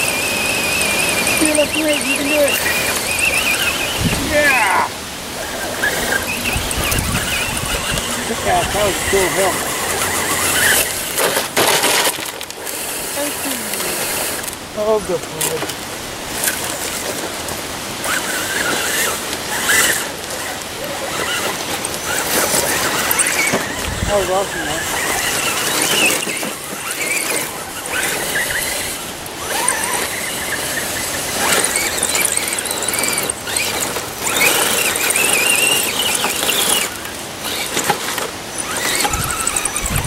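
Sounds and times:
wavering high tones: 0.0 - 10.9, 38.6 - 40.0
electric motor and gears whining: 0.0 - 40.0
wind buffeting microphone: 2.4 - 11.1, 23.6 - 25.6, 38.7 - 40.0.

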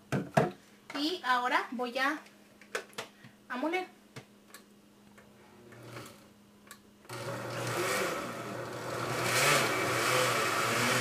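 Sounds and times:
blender motor running: 7.1 - 11.0.

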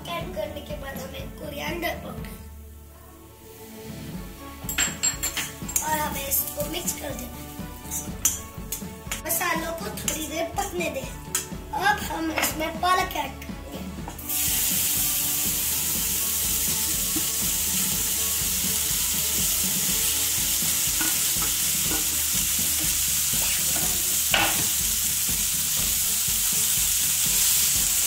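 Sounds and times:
spinach sizzling in oil: 3.4 - 8.8, 14.2 - 28.0
metal spoon clinking on pan: 4.7 - 5.8.

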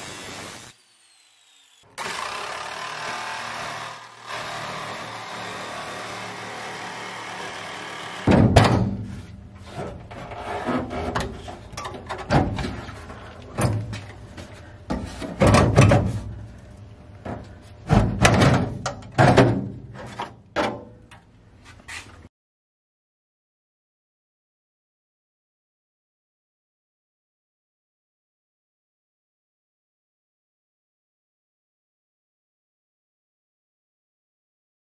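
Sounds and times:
die grinder sanding steel: 0.0 - 3.3
sheet metal thunks and clanks: 8.3 - 9.2, 10.8 - 12.8, 15.0 - 16.4, 17.8 - 20.9.

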